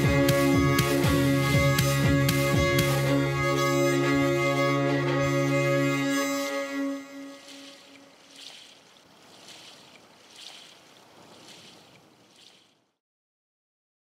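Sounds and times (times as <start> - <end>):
faint surf hissing: 6.4 - 12.9.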